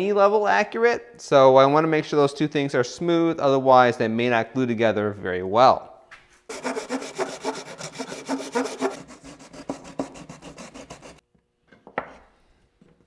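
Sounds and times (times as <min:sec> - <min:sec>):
sandpaper rasping on plastic: 0:06.5 - 0:11.2.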